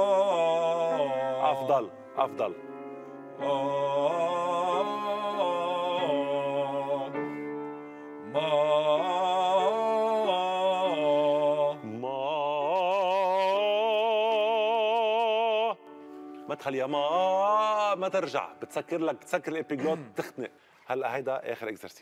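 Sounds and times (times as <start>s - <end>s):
piano accompaniment: 0.0s - 22.0s
man singing vocal exercise: 3.4s - 7.4s, 8.3s - 15.8s.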